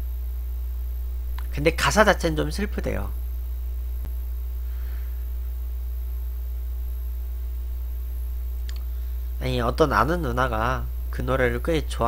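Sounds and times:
deep hum: 0.0 - 12.0
faint hiss: 0.0 - 12.0
faint click: 1.3 - 1.5, 8.6 - 8.9.

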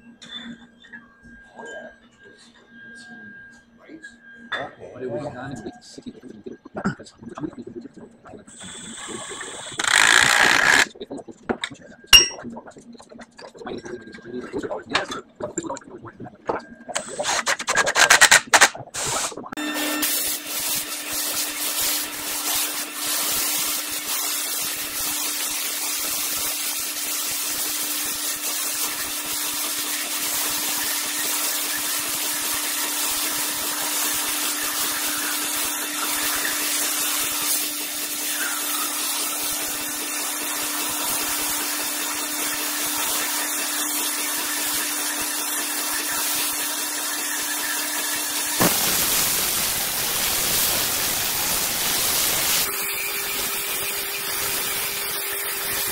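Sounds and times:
waterjet hissing: 8.5 - 10.9, 19.0 - 55.9.

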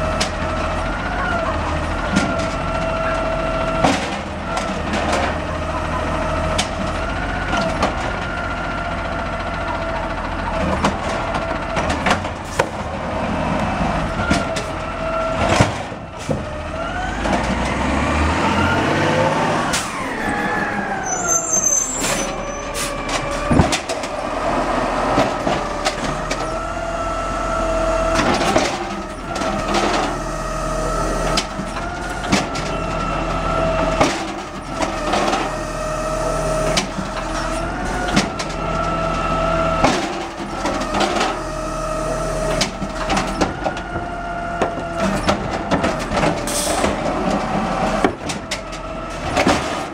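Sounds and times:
garbage truck engine whine: 0.0 - 49.9
knocks and clanks: 14.0 - 17.8, 23.0 - 24.2, 28.1 - 30.3, 31.3 - 35.7, 36.7 - 39.2, 39.8 - 41.5, 42.5 - 49.9.

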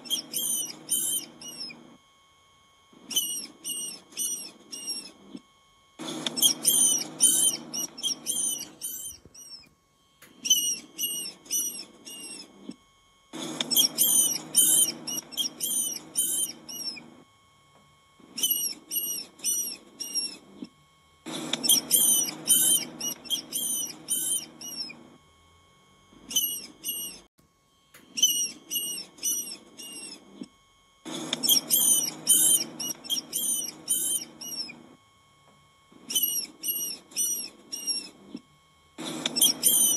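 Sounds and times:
rodent squeaking: 0.0 - 1.8, 3.0 - 5.4, 6.0 - 9.7, 10.4 - 12.7, 13.4 - 17.1, 18.3 - 20.7, 21.3 - 25.0, 26.3 - 27.3, 28.1 - 30.4, 31.1 - 34.8, 36.0 - 38.4, 39.0 - 39.9.

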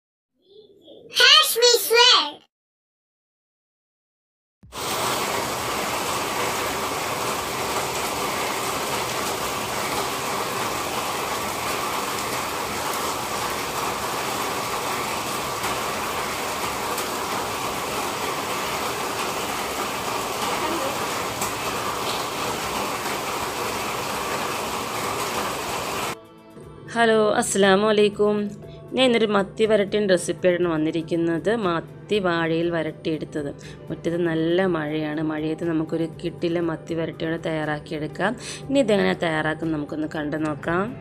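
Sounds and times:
heavy rain on leaves and gravel: 4.7 - 26.2.

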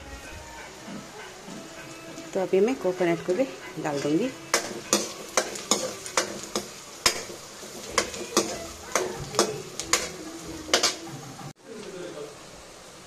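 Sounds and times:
food sizzling in oil: 0.0 - 13.0
spoon scraping and knocking a pan: 3.9 - 11.2.

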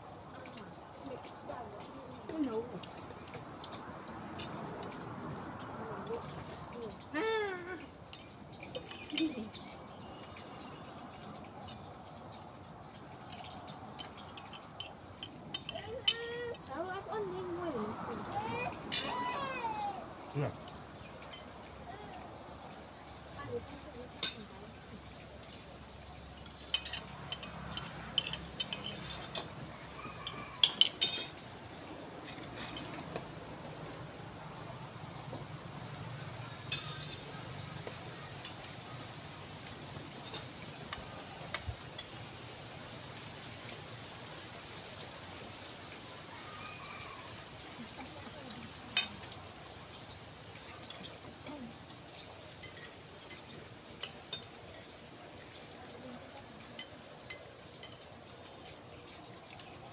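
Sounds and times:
spoons clinking on ceramic bowls: 8.0 - 10.4, 13.2 - 16.5, 18.9 - 19.3, 20.6 - 21.7, 24.1 - 31.6, 32.2 - 33.6, 36.6 - 38.7, 39.6 - 42.2, 52.5 - 55.0, 56.6 - 58.9.

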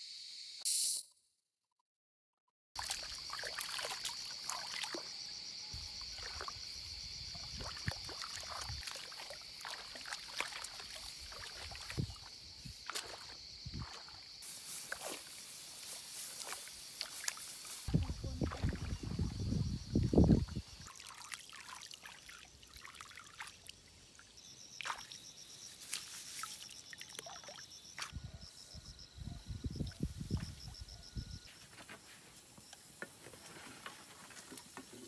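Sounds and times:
high-pitched insect drone: 0.0 - 1.0, 2.8 - 21.0
muddy water sloshing and splashing: 2.8 - 5.2, 5.8 - 25.2.

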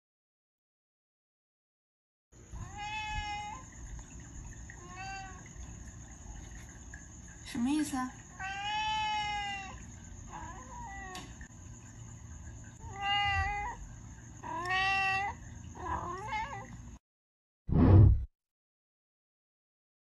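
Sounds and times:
cat meowing: 2.6 - 3.6, 4.8 - 5.5, 8.4 - 11.3, 12.8 - 13.8, 14.4 - 16.8
loud thump: 17.7 - 18.3.

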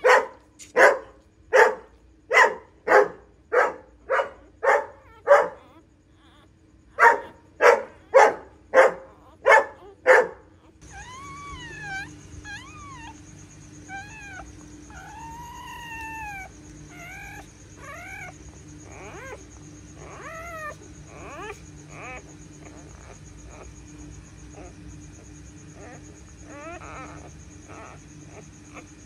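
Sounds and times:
dog barking: 0.0 - 5.8, 6.9 - 13.2
newborn puppies squealing: 4.4 - 29.0
high-pitched hum: 10.8 - 29.0.

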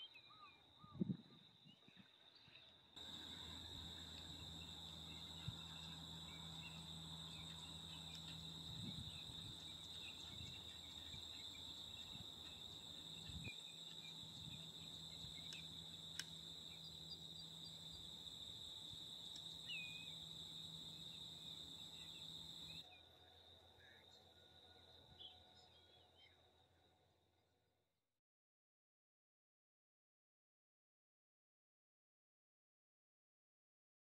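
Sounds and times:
insects trilling: 3.0 - 26.3
low steady hum: 3.0 - 26.3.

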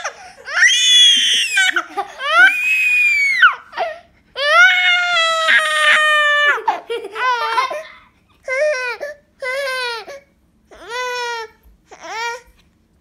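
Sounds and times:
infant crying: 0.0 - 12.5.

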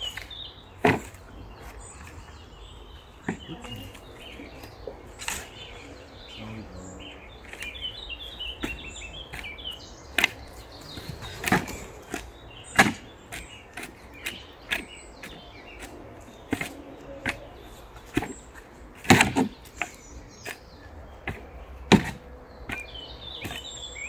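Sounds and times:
birds chirping: 0.0 - 24.0
shovel scraping and digging soil: 3.2 - 5.8, 8.6 - 23.8.

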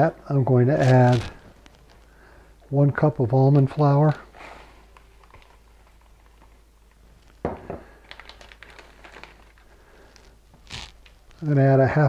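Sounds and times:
plastic bag crinkling: 0.7 - 2.2, 4.8 - 11.5.

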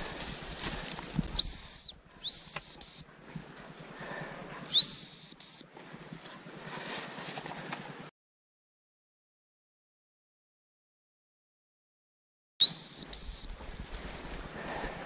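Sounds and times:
high dog whistle blasts: 1.4 - 3.1, 4.6 - 5.7, 12.6 - 13.6
faint rustling: 5.8 - 8.0.

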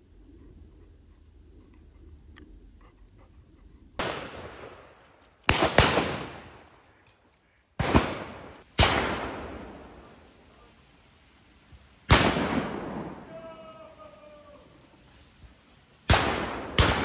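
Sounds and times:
shotgun shots with echo: 4.0 - 4.8, 5.5 - 6.6, 7.8 - 9.8, 12.1 - 13.3, 16.1 - 17.0.

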